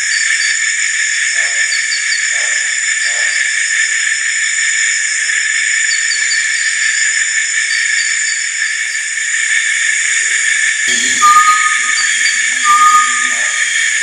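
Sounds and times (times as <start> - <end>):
night insects chorus: 0.0 - 14.0
quick chirps: 10.9 - 13.9.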